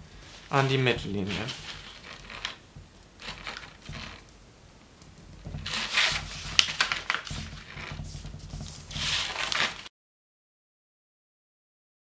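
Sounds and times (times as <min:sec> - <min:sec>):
stiff paper rustling and crinkling: 0:00.3 - 0:02.6, 0:05.5 - 0:09.9
sharp paper crackle: 0:01.2 - 0:02.6, 0:03.2 - 0:04.2, 0:05.6 - 0:09.9.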